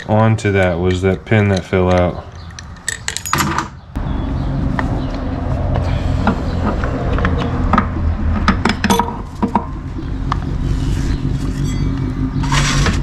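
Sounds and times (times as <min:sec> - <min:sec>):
metal parts clinking and knocking: 0:01.5 - 0:03.8.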